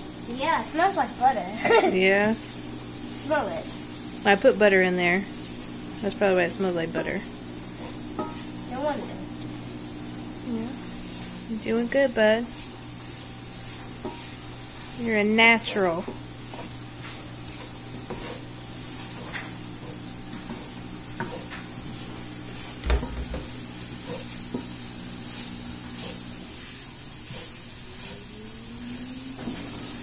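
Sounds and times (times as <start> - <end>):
vegetables sizzling in a pan: 0.0 - 30.0
wooden spatula scraping a pan: 11.1 - 28.3.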